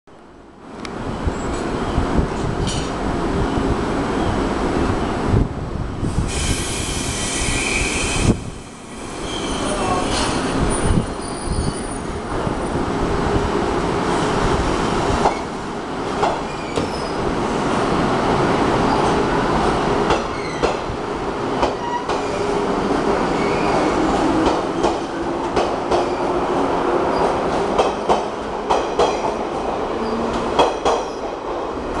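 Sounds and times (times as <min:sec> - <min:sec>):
train rumble and motor hum: 0:00.5 - 0:07.1.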